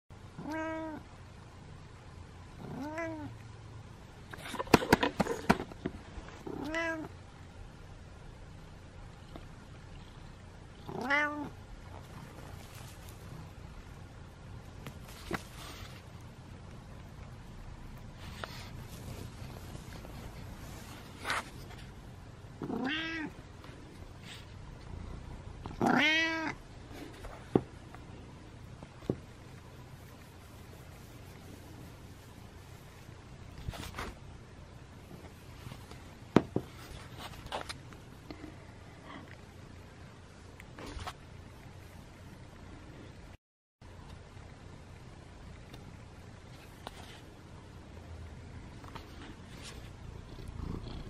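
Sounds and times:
kitten meowing: 11.0s - 11.5s.

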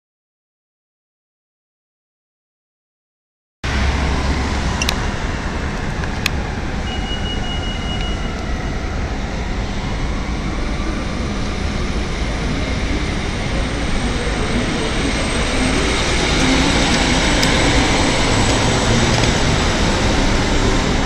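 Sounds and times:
buses and traffic rumbling: 3.6s - 21.0s
high steady tone: 6.7s - 8.7s.

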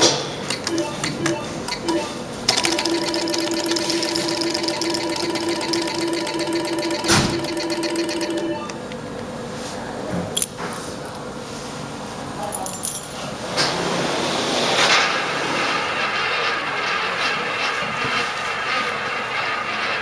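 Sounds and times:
rapid pulsing counting tone: 2.5s - 8.7s.

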